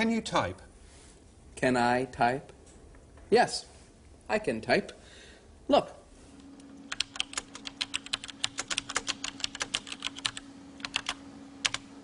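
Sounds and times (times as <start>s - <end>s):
computer keyboard typing: 6.9s - 11.9s.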